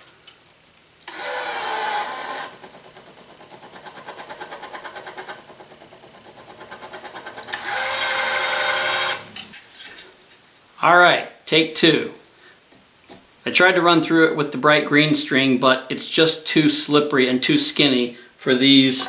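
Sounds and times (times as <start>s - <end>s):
motor whine: 1.1s - 3.2s, 7.5s - 9.5s.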